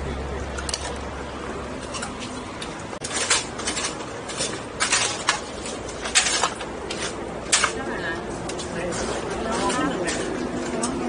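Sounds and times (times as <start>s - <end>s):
background murmur: 0.0s - 11.0s
metal utensils clinking on tray: 1.8s - 7.9s.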